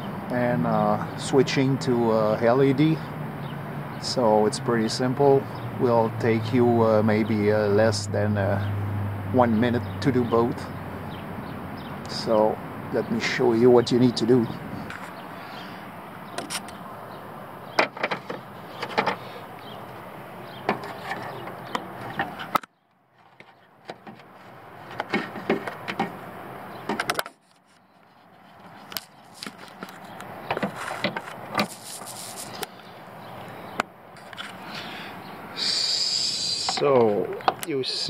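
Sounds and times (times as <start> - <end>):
handling clicks and scrapes: 14.8 - 15.7, 16.3 - 16.8, 17.8 - 32.9, 33.7 - 34.8
background hiss: 34.6 - 37.0.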